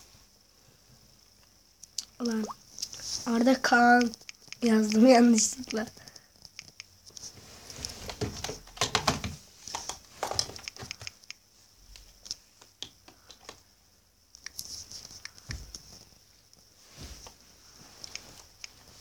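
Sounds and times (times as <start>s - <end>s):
fingers tapping touchscreen: 9.7s - 11.4s.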